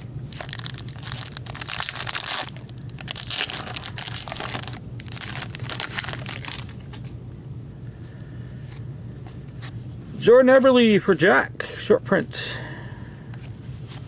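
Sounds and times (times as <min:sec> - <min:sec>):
foil wrapper crinkling: 0:00.3 - 0:07.1
foil wrapper rustling: 0:00.3 - 0:07.1.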